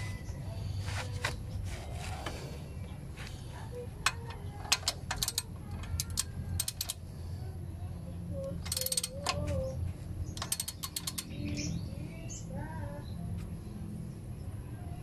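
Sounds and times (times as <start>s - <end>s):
socket ratchet clicking: 4.0s - 7.0s, 8.5s - 9.6s, 10.3s - 11.4s.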